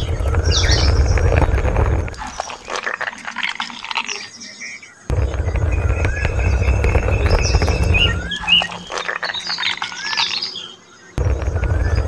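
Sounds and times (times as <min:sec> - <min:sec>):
low rumble: 0:00.0 - 0:02.8, 0:05.1 - 0:09.8, 0:11.2 - 0:12.0
light scratchy ticking: 0:00.0 - 0:12.0
small birds chirping: 0:00.0 - 0:12.0.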